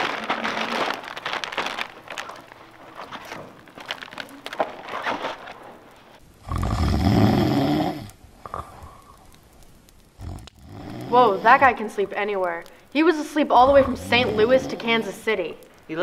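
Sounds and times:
bag rustling: 0.0 - 6.2
loud rasping snore: 6.4 - 8.8, 10.2 - 11.4, 13.6 - 14.9.

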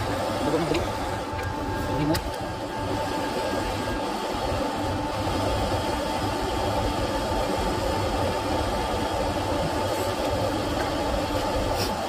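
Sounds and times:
gas torch hissing: 4.7 - 12.0.

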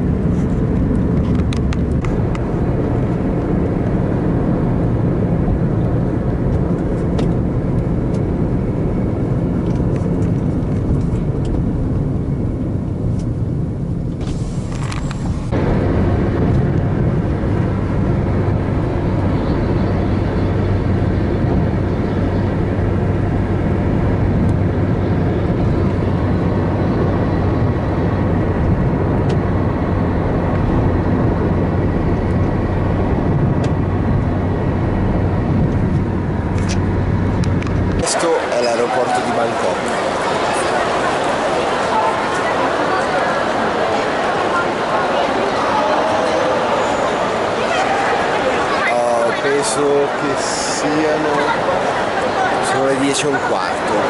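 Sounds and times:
low hum: 0.0 - 38.1
car road and engine noise: 0.0 - 54.0.

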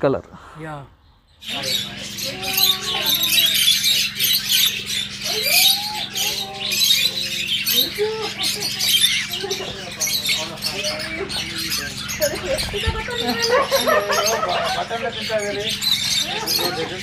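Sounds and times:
steady low hum: 0.2 - 17.0
budgerigars chirping and warbling: 0.8 - 17.0.

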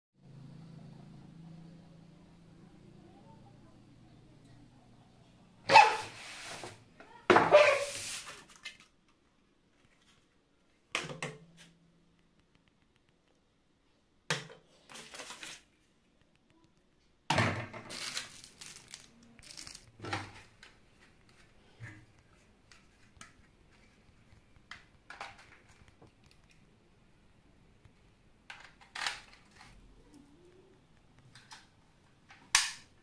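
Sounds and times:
plastic toy parts clicking and rattling: 17.8 - 20.8, 28.5 - 29.8.

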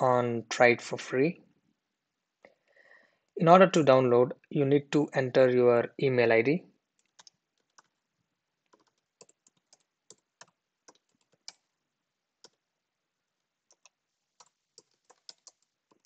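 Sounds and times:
typing on a keyboard: 7.0 - 8.0, 8.7 - 11.7, 12.4 - 12.6, 13.7 - 16.0.

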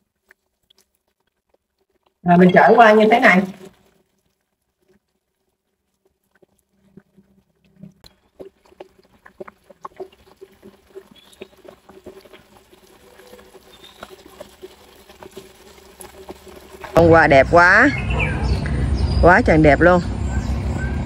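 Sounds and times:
pork frying with oil spatters: 8.1 - 17.6.

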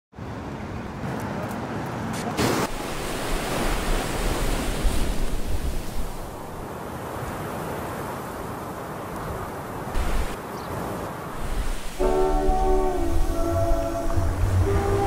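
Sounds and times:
wind: 0.1 - 15.0
surf rushing: 2.2 - 8.6, 9.8 - 15.0.

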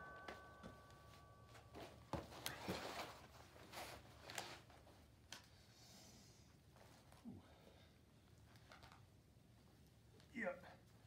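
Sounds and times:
metallic ring: 0.0 - 2.1.

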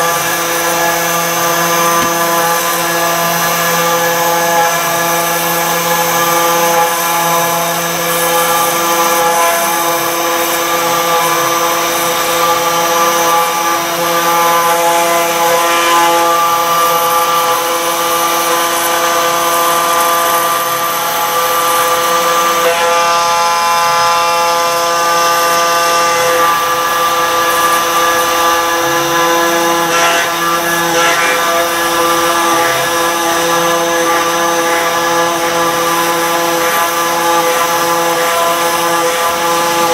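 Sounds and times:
router spindle whining: 0.0 - 39.9
grinding hiss of stone milling: 26.4 - 39.9.

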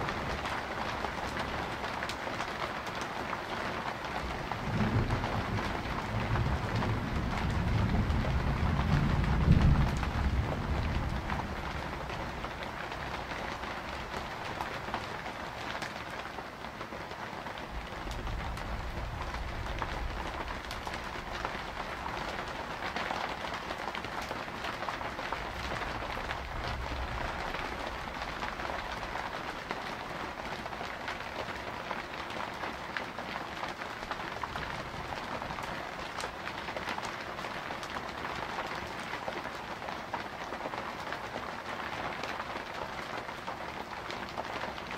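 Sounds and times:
rainfall: 0.0 - 44.9
thunder rumbling: 4.4 - 14.4, 17.7 - 22.6, 25.4 - 30.4.

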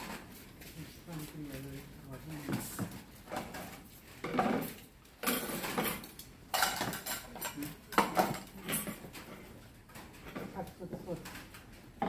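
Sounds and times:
utensils clinking on bowl and plates: 2.4 - 11.7.

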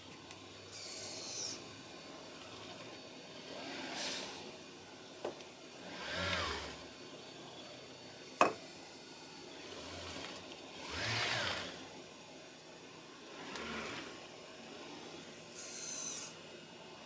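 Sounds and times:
robot joint motors whining: 0.7 - 4.5, 5.8 - 6.9, 9.5 - 12.0, 13.3 - 14.3, 15.5 - 16.4.

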